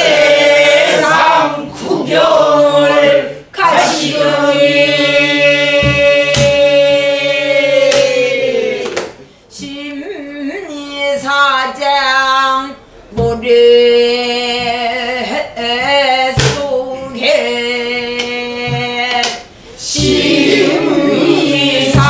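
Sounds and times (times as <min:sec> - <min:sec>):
barrel drum strokes: 0:05.7 - 0:06.7, 0:20.0 - 0:22.0.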